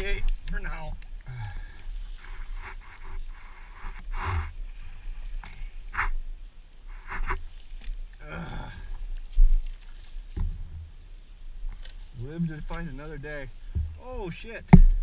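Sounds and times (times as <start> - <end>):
breathy rustling noises: 1.2 - 6.2, 6.9 - 10.4.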